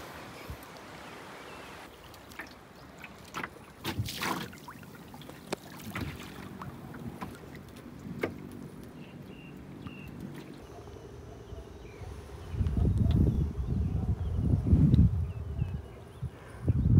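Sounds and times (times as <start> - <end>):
paddle splashing in water: 1.9 - 8.5
water dripping: 1.9 - 9.0.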